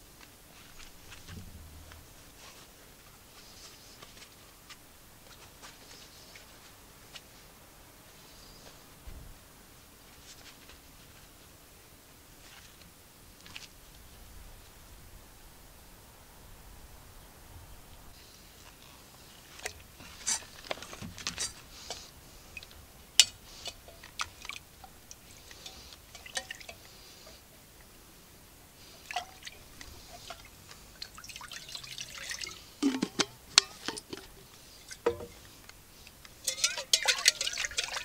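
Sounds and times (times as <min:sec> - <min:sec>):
water sloshing in metal tin: 0:19.4 - 0:27.4, 0:28.9 - 0:38.0
spoon clinking on metal: 0:36.4 - 0:38.0.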